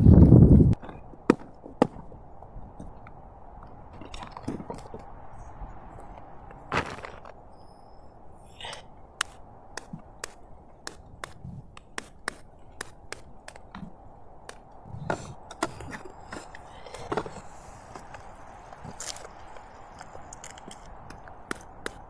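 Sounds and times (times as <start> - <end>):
steady background hiss: 1.6 - 22.0.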